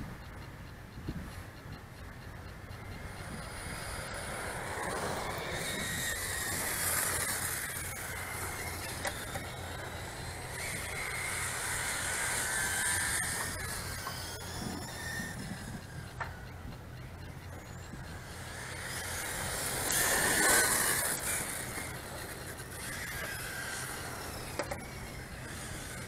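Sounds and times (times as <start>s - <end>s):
rc car motors whining: 0.1s - 26.0s
tyres hissing on paving: 18.2s - 26.0s.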